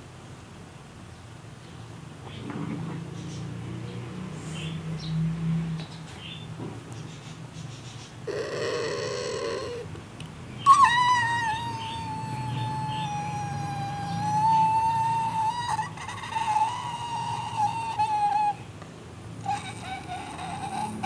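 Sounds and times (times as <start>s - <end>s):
dog whining: 8.2s - 9.9s, 10.6s - 21.0s.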